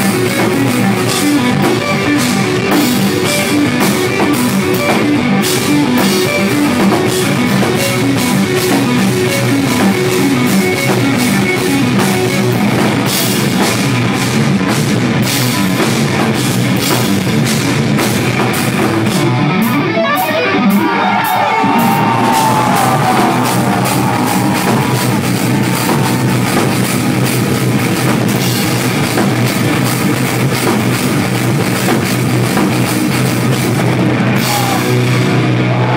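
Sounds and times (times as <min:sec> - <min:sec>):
distorted electric guitar: 0:00.0 - 0:35.9
drum kit: 0:00.0 - 0:35.9
gliding lead guitar line: 0:00.0 - 0:35.9.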